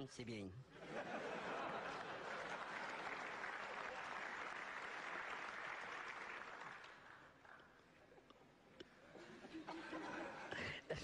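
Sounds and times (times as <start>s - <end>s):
audience applauding: 1.5s - 7.6s.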